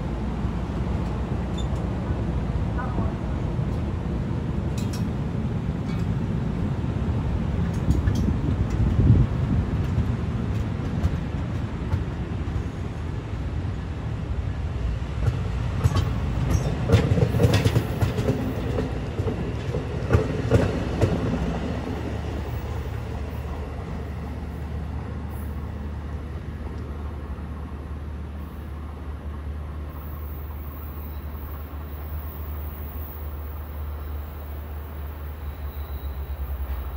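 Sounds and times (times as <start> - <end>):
train wheels rumbling on rail: 0.0 - 36.9
wheels clicking over rail joints: 7.6 - 12.6, 15.2 - 21.6.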